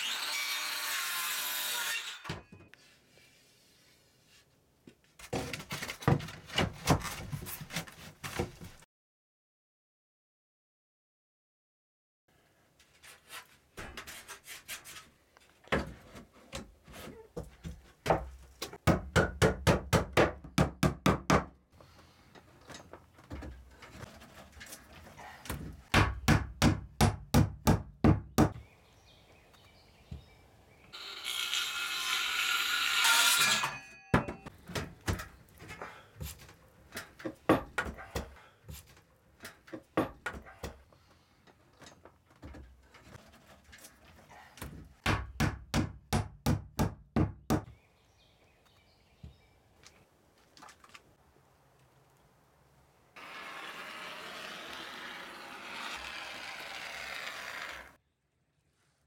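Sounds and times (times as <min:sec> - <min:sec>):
hammer driving nails into wood: 0:25.9 - 0:28.6, 0:45.0 - 0:47.7.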